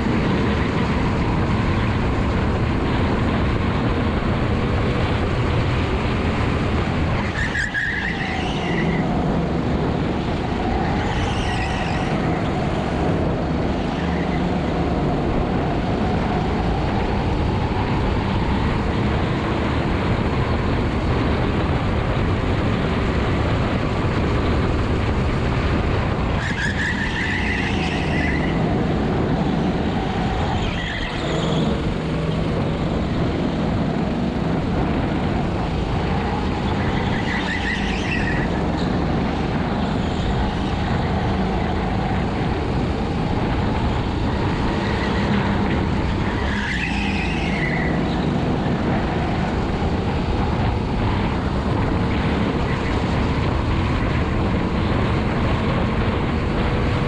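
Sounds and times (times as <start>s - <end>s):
tyre squeals: 7.3s - 9.0s, 10.9s - 12.5s, 30.4s - 31.7s, 36.7s - 38.5s, 46.2s - 48.3s.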